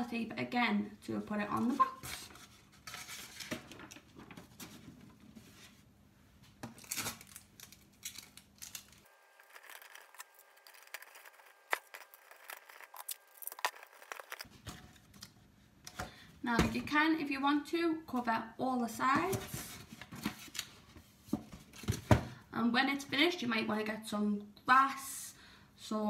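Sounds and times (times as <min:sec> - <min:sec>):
paper rustling and crinkling: 0:02.0 - 0:05.8, 0:06.6 - 0:15.3.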